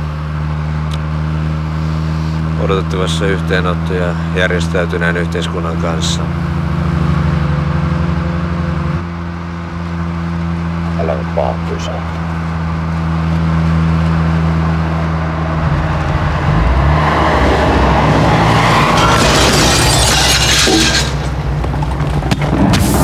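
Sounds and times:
car engine driving fast: 0.0s - 23.0s
rushing noise: 15.8s - 21.6s.

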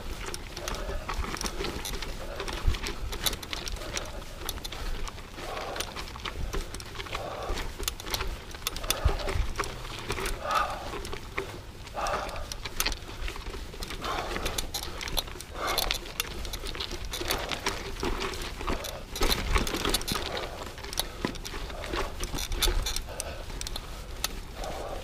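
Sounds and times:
bike clicks and rattles: 0.0s - 25.0s
rider breathing: 0.0s - 25.0s
tyres crunching on gravel: 0.0s - 25.0s.

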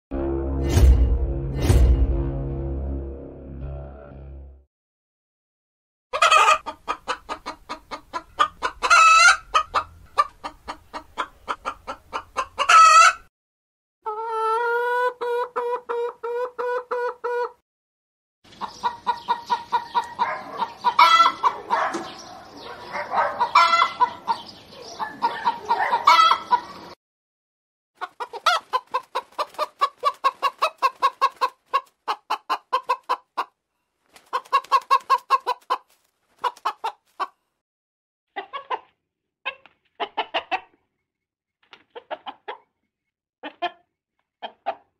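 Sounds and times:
chickens clucking: 6.1s - 13.3s, 14.0s - 17.6s, 18.5s - 27.0s, 28.0s - 37.4s, 38.4s - 40.9s, 41.8s - 42.7s, 43.4s - 44.9s
hens crying out: 8.4s - 9.8s, 14.0s - 17.4s, 20.0s - 21.8s, 23.4s - 24.4s, 25.0s - 26.8s.

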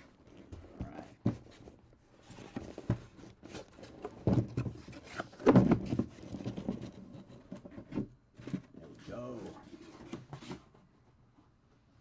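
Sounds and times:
cardboard boxes knocking and scraping: 0.3s - 8.8s.

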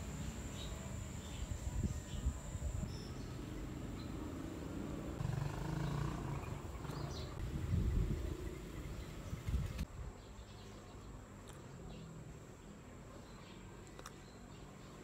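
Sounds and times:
birds chirping: 0.0s - 11.2s.

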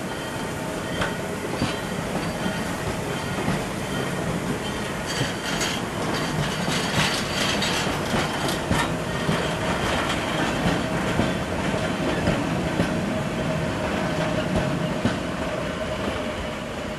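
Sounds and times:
train wheels rumbling on rail: 0.0s - 16.9s
clacks over rail joints: 1.0s - 13.0s.

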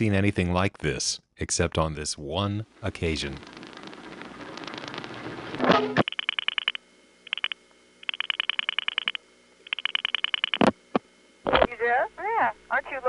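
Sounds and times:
rotary dial pulse clicks: 6.0s - 11.0s.

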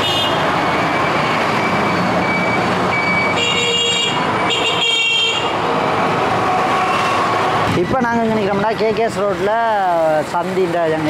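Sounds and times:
vehicle horn toots: 0.0s - 0.4s, 3.3s - 5.5s
road traffic passing: 0.0s - 11.0s.

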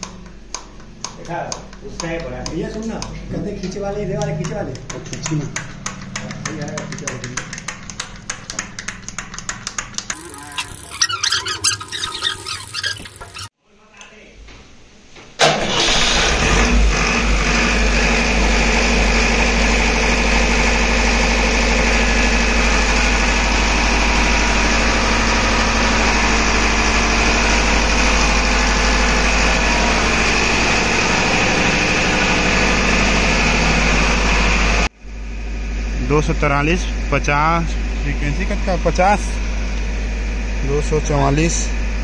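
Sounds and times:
diesel generator running: 10.0s - 13.5s, 15.4s - 42.0s.

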